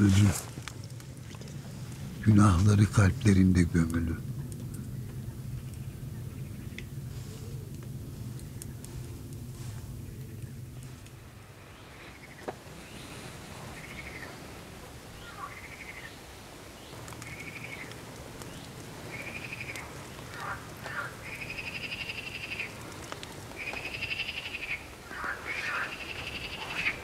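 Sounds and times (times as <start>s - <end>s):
faint low rumble: 0.0s - 27.0s
frogs trilling: 13.6s - 14.5s, 15.1s - 22.9s, 23.5s - 27.0s.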